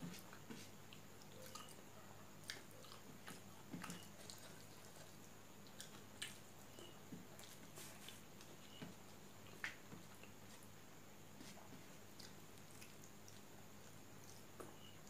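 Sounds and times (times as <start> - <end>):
person chewing: 0.1 - 1.8, 2.4 - 8.2, 12.1 - 14.7.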